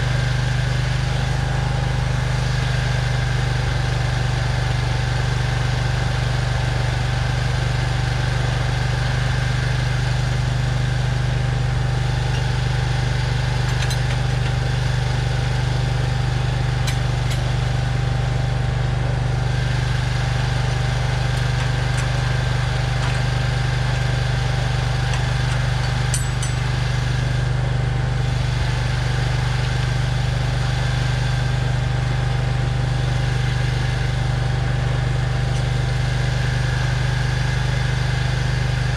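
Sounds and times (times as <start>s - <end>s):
engine idling: 0.0s - 38.9s.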